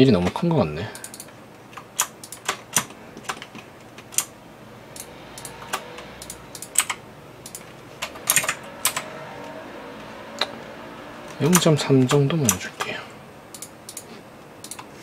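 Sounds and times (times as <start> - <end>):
computer keyboard keys clicking: 1.0 - 4.3, 6.2 - 9.0, 11.5 - 14.9.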